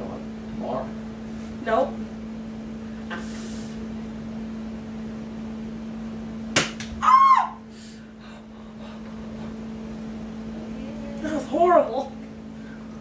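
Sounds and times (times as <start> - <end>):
woman yelping: 7.0 - 7.6.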